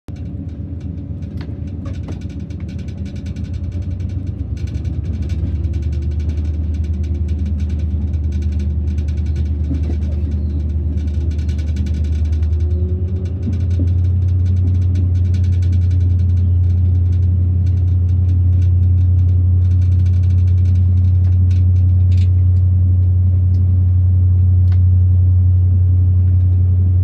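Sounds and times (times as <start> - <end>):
diesel locomotive engine droning: 0.1 - 27.0.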